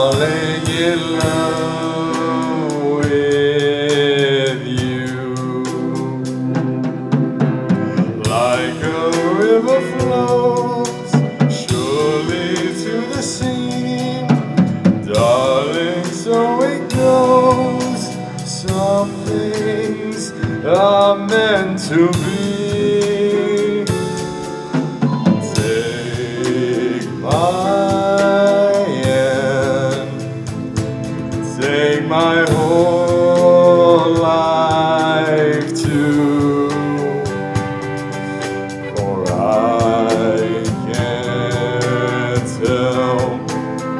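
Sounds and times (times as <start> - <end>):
man singing through microphone: 0.0 - 6.6, 8.1 - 24.6, 25.2 - 30.6, 31.3 - 38.2, 38.9 - 43.9
drum kit: 0.0 - 43.9
guitars: 0.0 - 43.9.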